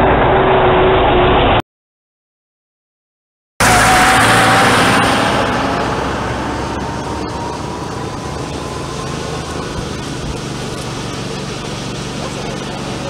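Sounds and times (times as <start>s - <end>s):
faint falling whine: 3.6s - 13.0s
minibus driving past: 3.6s - 13.0s
steady background noise: 3.8s - 13.0s.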